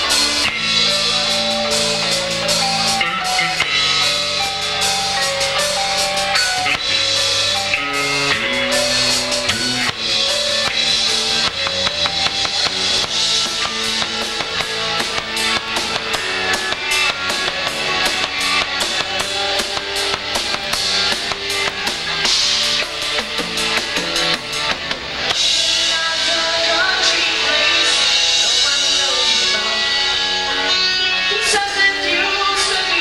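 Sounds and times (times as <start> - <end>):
electric guitar: 0.0 - 33.0
live rock band playing: 0.0 - 33.0
drum kit hits: 0.2 - 25.6.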